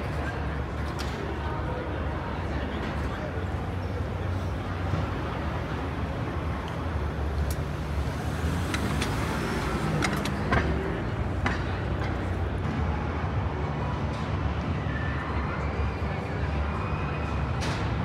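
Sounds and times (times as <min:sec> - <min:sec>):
sharp clicks and knocks: 0:08.4 - 0:12.4.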